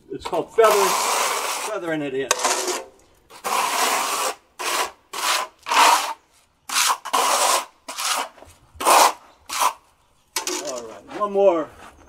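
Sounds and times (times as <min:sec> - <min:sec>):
trowel scraping stucco wall: 0:00.2 - 0:12.0.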